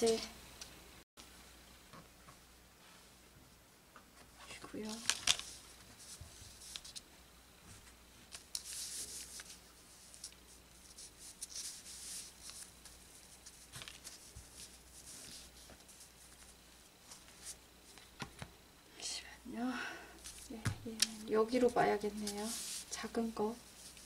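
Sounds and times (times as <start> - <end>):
paper and cloth rustling: 4.8 - 7.0, 7.7 - 18.1, 20.2 - 24.0.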